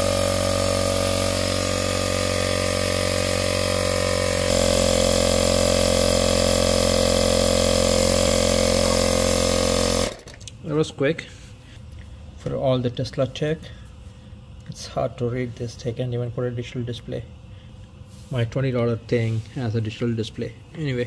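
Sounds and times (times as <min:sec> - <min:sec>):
electric air compressor running: 0:00.0 - 0:10.5.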